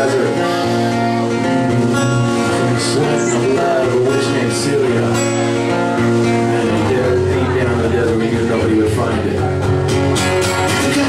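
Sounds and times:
electric guitar: 0.0s - 11.0s
strummed acoustic guitar: 0.0s - 11.0s.

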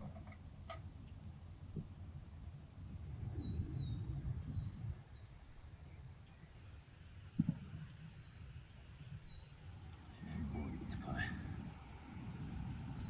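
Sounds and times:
small bird chirping: 3.2s - 10.0s.

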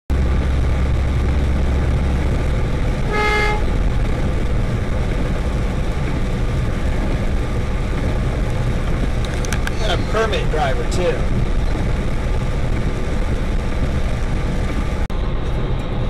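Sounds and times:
truck engine rumble: 0.1s - 16.0s
horn toot: 3.0s - 3.7s.

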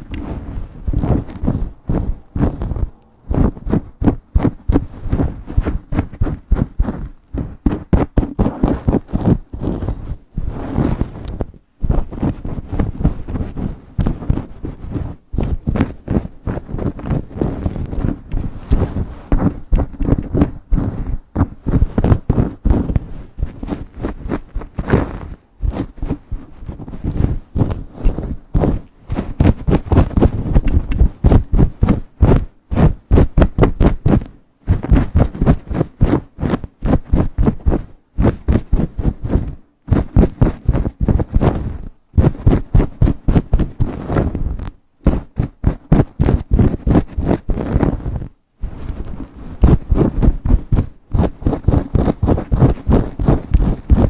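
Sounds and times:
fingernails scratching hair and scalp: 0.0s - 54.0s.

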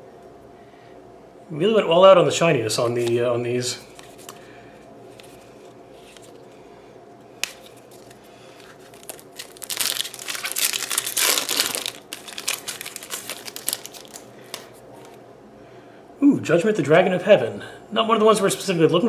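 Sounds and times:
foil wrapper crinkling: 7.4s - 14.8s.

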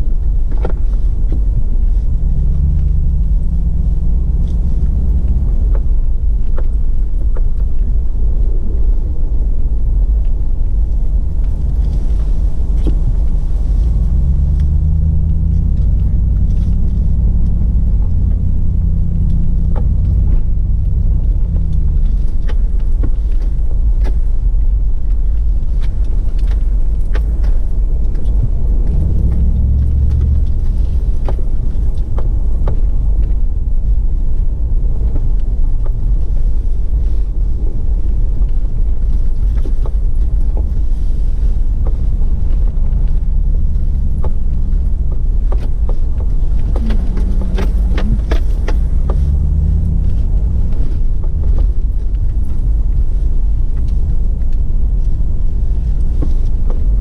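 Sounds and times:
engine revving: 1.9s - 6.2s, 11.1s - 22.4s, 28.3s - 31.9s, 41.8s - 54.4s.

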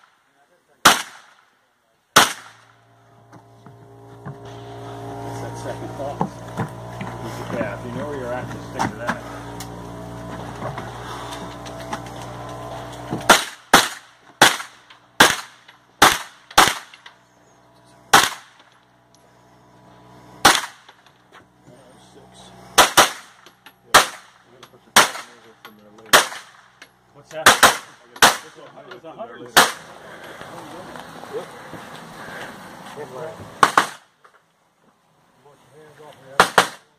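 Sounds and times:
gunshots: 0.8s - 1.5s, 2.1s - 2.8s, 13.2s - 17.1s, 18.1s - 18.6s, 20.4s - 20.9s, 22.8s - 25.5s, 26.1s - 26.7s, 27.4s - 28.6s, 29.6s - 29.9s, 33.6s - 34.1s, 36.3s - 36.9s.

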